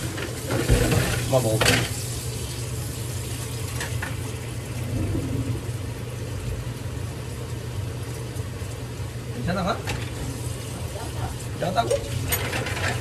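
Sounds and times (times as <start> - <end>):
tap water running into sink: 0.0 - 4.9, 9.7 - 13.0
low mechanical hum: 0.0 - 13.0.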